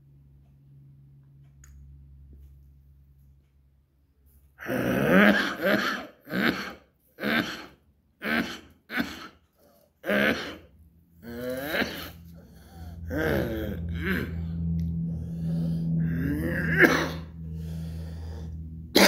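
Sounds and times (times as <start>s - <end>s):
man coughing: 4.6s - 12.2s, 16.5s - 17.4s.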